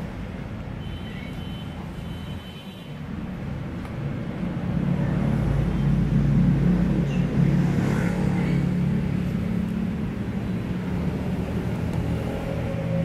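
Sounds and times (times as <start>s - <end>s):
low engine hum: 3.0s - 13.0s.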